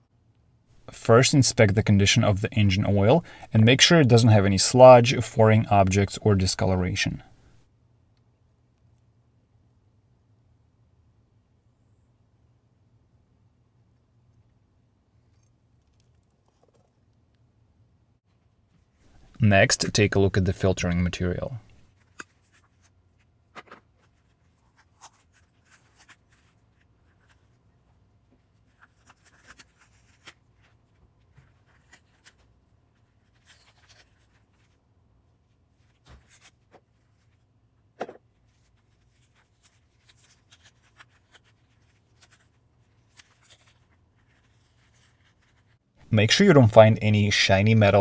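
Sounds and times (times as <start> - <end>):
paper rustling and scratching: 20.8 - 34.8, 35.5 - 37.4, 38.1 - 45.8.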